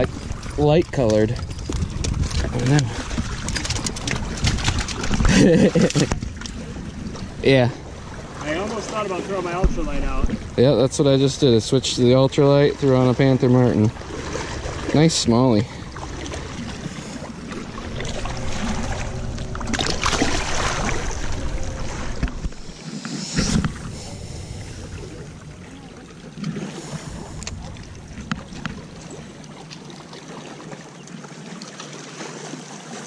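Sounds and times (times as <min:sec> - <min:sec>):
wind buffeting microphone: 0:00.0 - 0:08.4, 0:13.6 - 0:30.0
knocks and splashes: 0:00.0 - 0:10.6, 0:12.8 - 0:31.2
waves lapping on rocks: 0:00.0 - 0:33.0.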